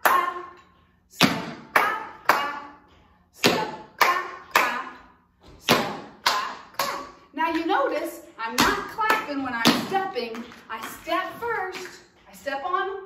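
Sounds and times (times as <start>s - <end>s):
tap shoes on hard floor: 8.5s - 12.0s.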